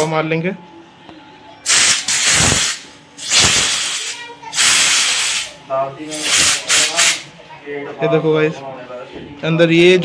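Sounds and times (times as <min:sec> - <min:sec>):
compressed air blasts: 0:01.7 - 0:07.3.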